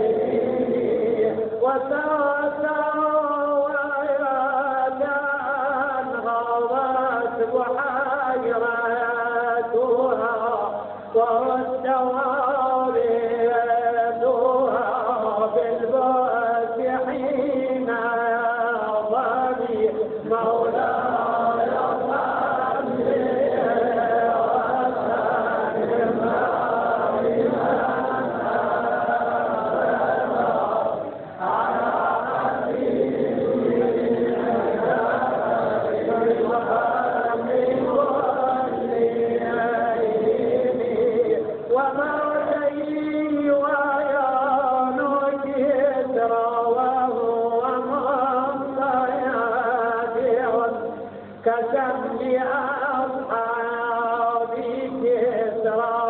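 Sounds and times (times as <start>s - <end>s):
person chanting melodically: 0.0s - 56.0s.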